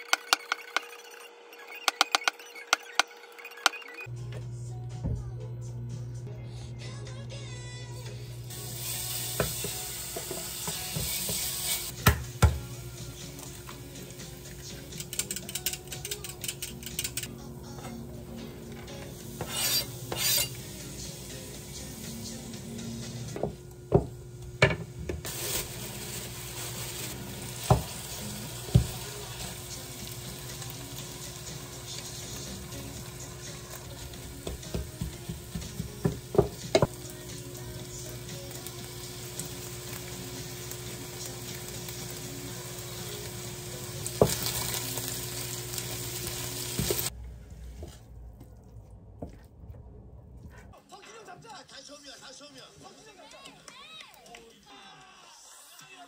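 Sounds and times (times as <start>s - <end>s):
rice sizzling in a frying pan: 8.4s - 12.0s, 25.2s - 47.2s
wooden spatula scraping a pan: 19.4s - 20.6s.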